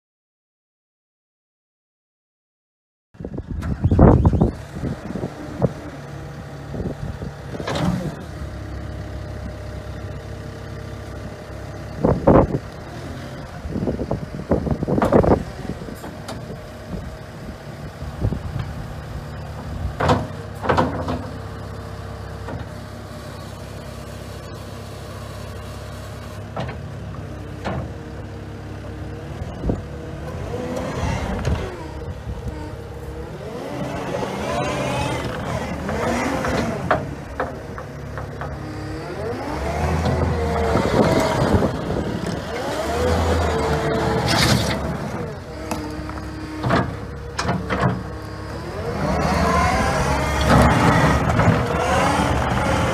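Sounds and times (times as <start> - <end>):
diesel engine of track loader: 3.2 - 52.9.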